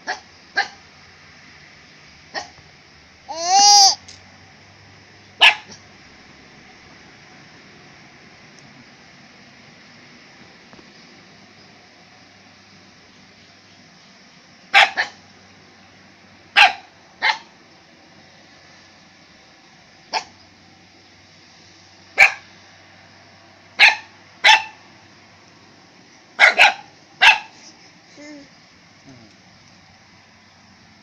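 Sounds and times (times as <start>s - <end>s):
young dog barking: 0.0s - 0.8s, 2.3s - 2.6s, 5.4s - 5.8s, 14.7s - 15.2s, 16.6s - 17.5s, 22.2s - 22.4s, 23.8s - 24.8s, 26.4s - 27.6s.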